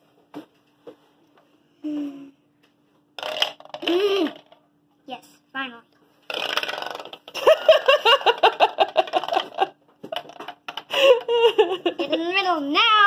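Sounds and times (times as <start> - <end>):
child giggling: 11.0 - 12.6.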